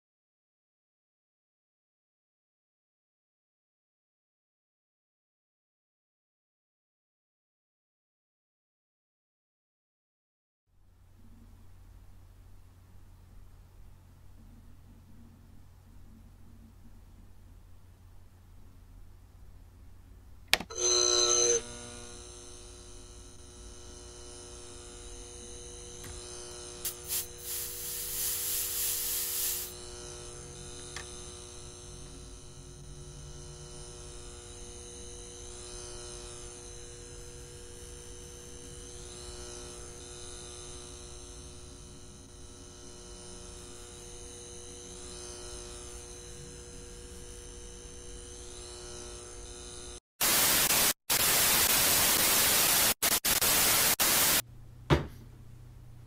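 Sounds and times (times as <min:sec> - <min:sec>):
electrical mains hum: 0:10.8 - 0:56.0
buzzing tones: 0:20.7 - 0:31.7
hiss: 0:26.8 - 0:29.8, 0:50.2 - 0:54.4
loud white-noise static: 0:26.9 - 0:29.7, 0:50.2 - 0:54.4.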